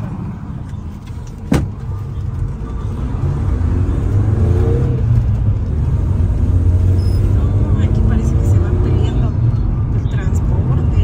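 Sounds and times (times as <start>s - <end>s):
bus engine and road rumble: 0.0s - 11.0s.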